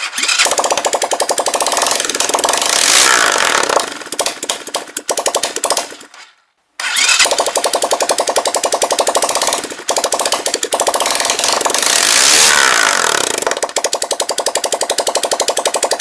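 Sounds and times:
motorcycle engine running and revving: 1.5s - 4.1s, 9.0s - 16.0s.

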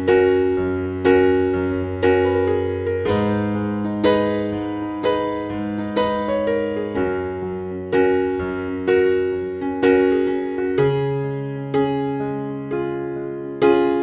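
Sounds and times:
electric piano chords: 0.0s - 14.0s.

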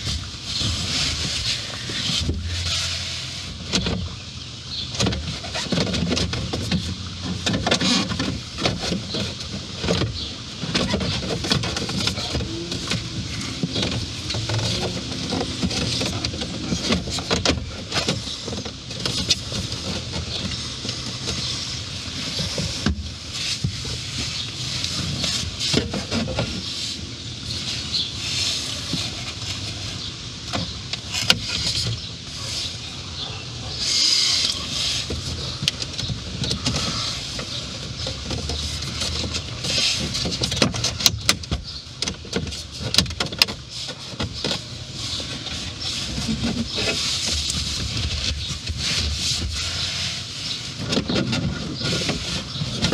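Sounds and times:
rustling handling noise: 0.0s - 52.9s.

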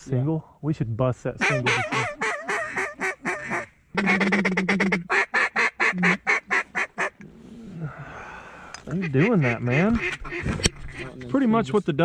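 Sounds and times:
duck call quacking: 1.4s - 7.1s, 9.0s - 11.1s.

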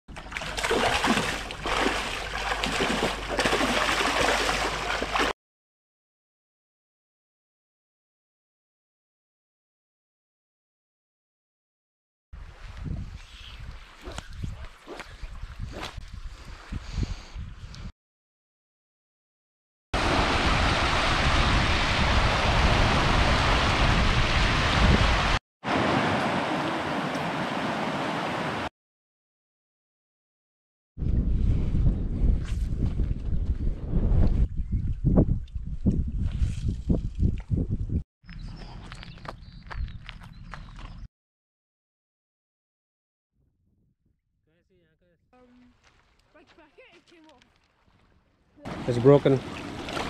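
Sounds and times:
fish splashing in water: 0.1s - 5.3s, 48.7s - 50.0s
stream rushing over stones: 0.3s - 5.3s, 20.0s - 28.7s, 48.6s - 50.0s.

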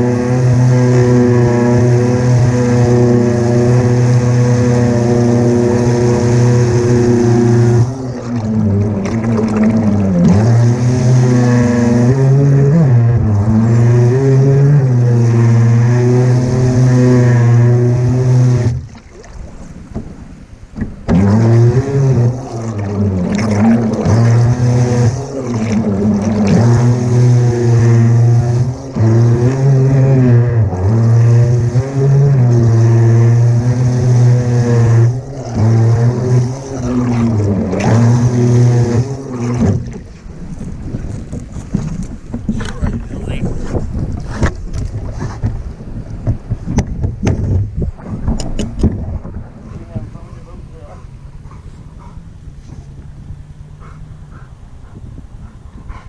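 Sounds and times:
remote-control boat motor running: 0.0s - 18.9s, 21.0s - 45.0s
water spraying off hull: 0.0s - 56.0s.

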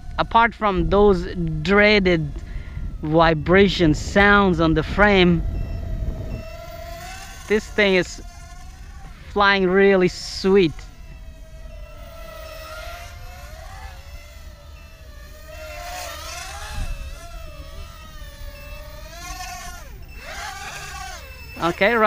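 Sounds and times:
quadcopter motors whining: 0.0s - 22.0s
short high beeps: 3.0s - 7.7s, 9.3s - 22.0s.

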